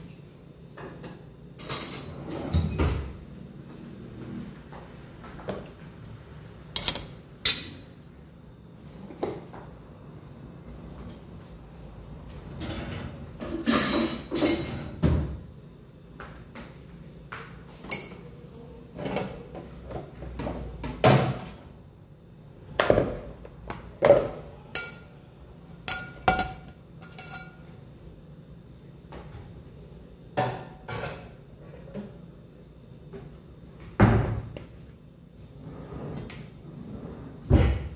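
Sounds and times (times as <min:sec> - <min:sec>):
kitchenware knocking and clinking: 0:06.8 - 0:07.8, 0:25.9 - 0:27.6.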